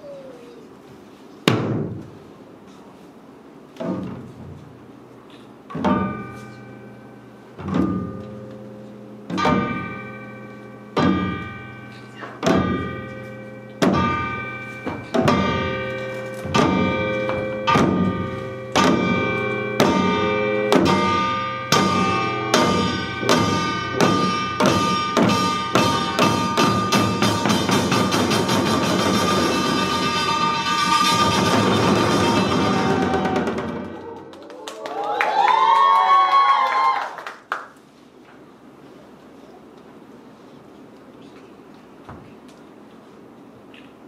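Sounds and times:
hourglass drums playing in unison: 5.8 - 34.1.

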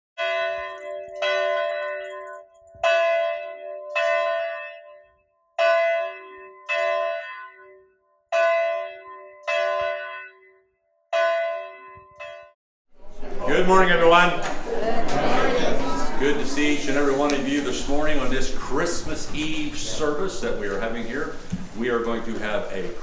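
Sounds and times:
church bell tolling: 0.2 - 12.6.

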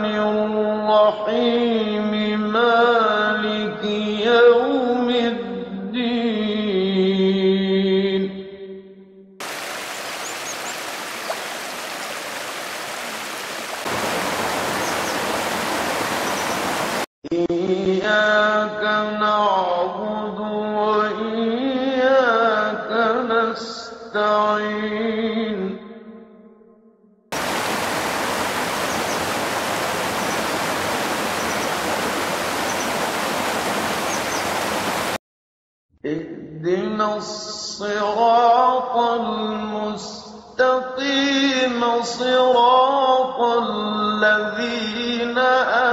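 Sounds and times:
stream water rushing over rocks: 9.4 - 17.1, 27.4 - 35.2.

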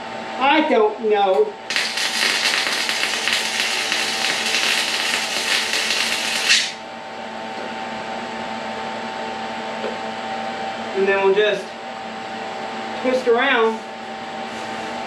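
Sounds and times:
machine hum: 1.4 - 15.0
arc welding crackling hiss: 1.7 - 6.8.

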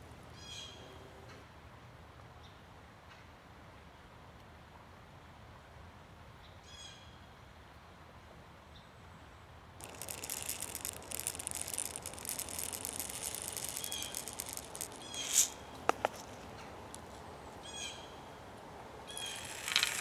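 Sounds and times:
powder pouring hiss: 9.8 - 17.2, 19.1 - 20.0.

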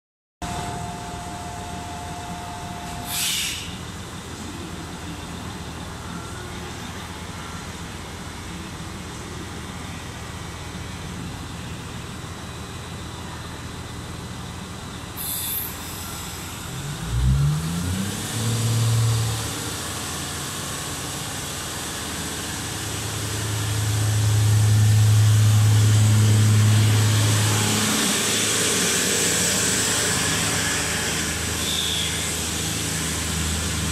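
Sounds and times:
diesel train engine humming: 0.4 - 33.9
train rolling noise: 0.4 - 33.9
air release hisses: 3.0 - 3.8, 15.2 - 16.7.

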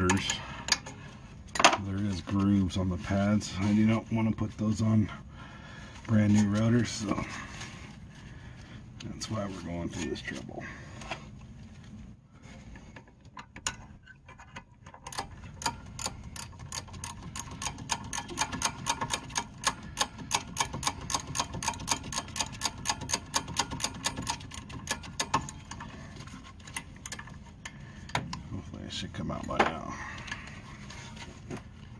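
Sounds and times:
hand ratchet clicking: 15.0 - 25.9.

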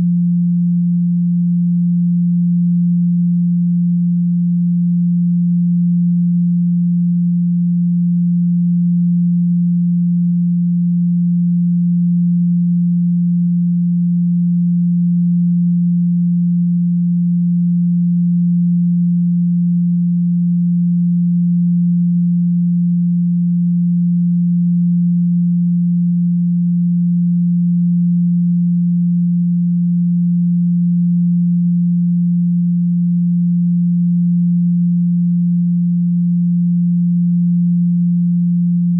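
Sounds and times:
low sine tone: 0.0 - 38.9.

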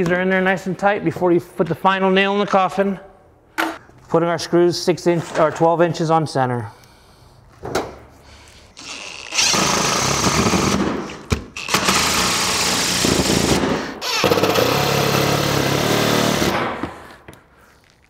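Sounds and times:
cordless driver driving screws: 8.8 - 13.0, 14.0 - 16.5.

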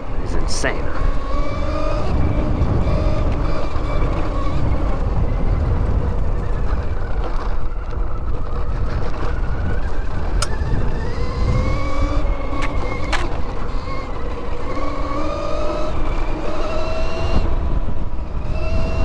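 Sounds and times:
electric motor whine: 0.0 - 19.0
tyres and wind rumble: 0.0 - 19.0
sharp click: 10.4 - 10.6.

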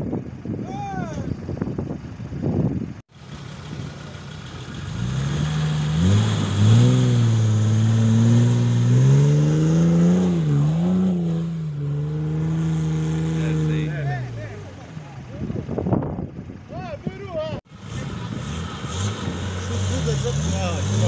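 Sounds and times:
engine revving hard: 4.8 - 14.6, 17.7 - 21.0.

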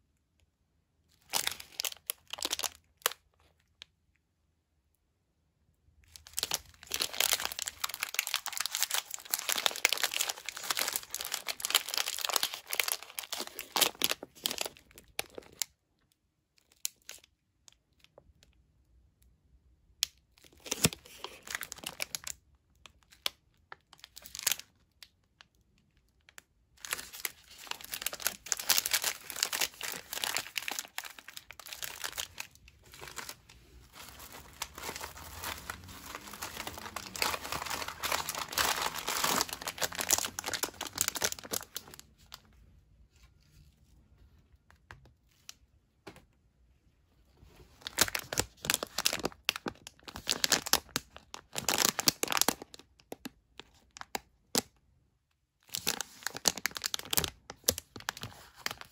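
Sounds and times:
plastic food packaging crinkling: 1.1 - 3.8, 6.0 - 15.8, 16.6 - 18.5, 20.3 - 42.6, 47.4 - 54.8, 55.6 - 58.9.

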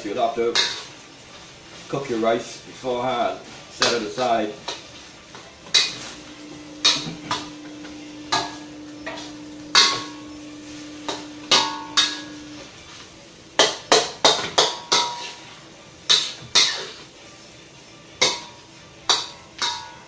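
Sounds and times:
spatula clanging and scraping in wok: 0.5 - 1.0, 5.7 - 12.6, 13.6 - 17.1, 18.2 - 20.0.

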